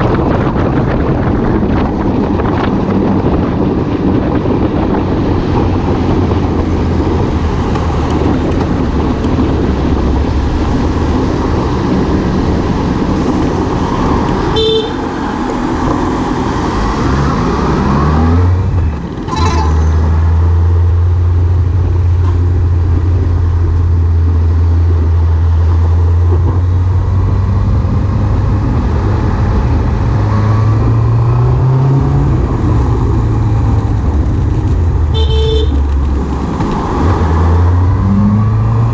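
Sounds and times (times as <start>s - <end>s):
short horn toot: 14.6s - 15.0s, 35.1s - 35.8s.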